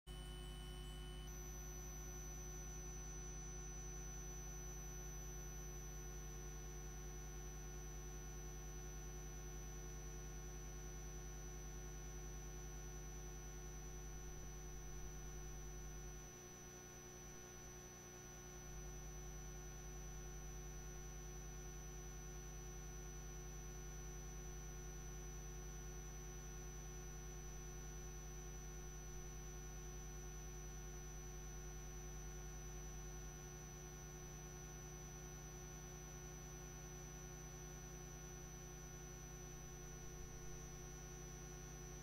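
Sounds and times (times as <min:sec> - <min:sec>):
low electrical hum: 0:00.1 - 0:09.1, 0:18.5 - 0:42.0
faint high-pitched whine: 0:00.1 - 0:42.0.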